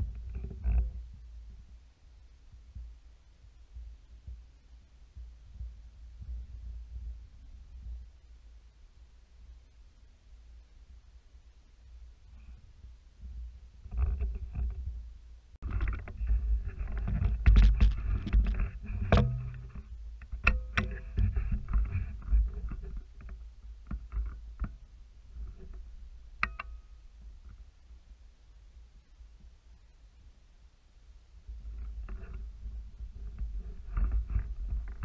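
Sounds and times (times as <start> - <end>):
sharp clicks and knocks: 15.6 - 24.8, 26.4 - 26.8.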